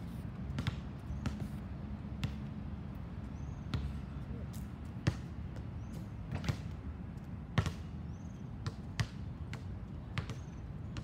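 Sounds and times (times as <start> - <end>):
basketball bouncing on hard court: 0.5 - 1.6, 2.2 - 2.5, 3.7 - 4.0, 5.0 - 6.8, 7.5 - 7.9, 8.6 - 11.0.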